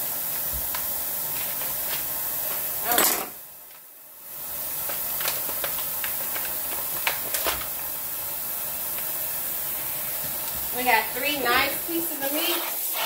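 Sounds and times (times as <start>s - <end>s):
plastic bag crinkling: 4.4s - 9.4s
faucet running into steel sink: 8.9s - 13.0s.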